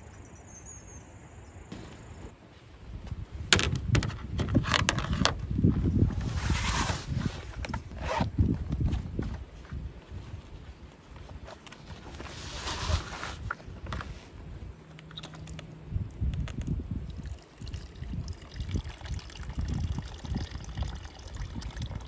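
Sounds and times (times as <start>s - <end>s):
fabric bag rustling: 6.0s - 14.4s.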